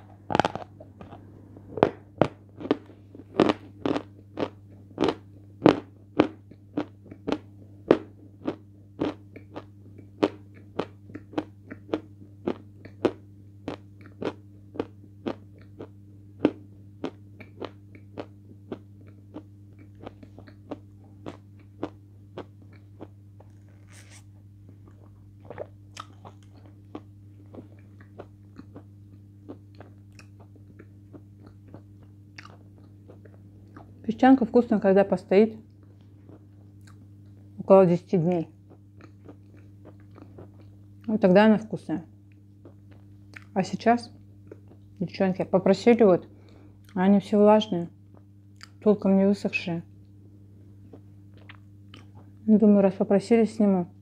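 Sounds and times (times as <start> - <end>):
chalk crunching while chewed: 0.0 - 1.2, 1.8 - 33.9, 38.7 - 40.8, 50.6 - 52.3.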